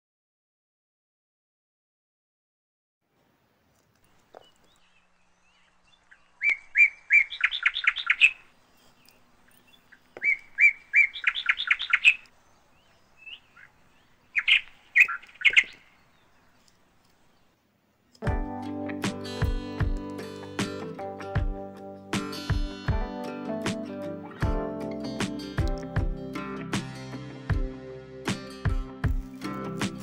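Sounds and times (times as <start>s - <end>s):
songbird singing: 3.1s - 18.2s
acoustic guitar music: 18.2s - 30.0s.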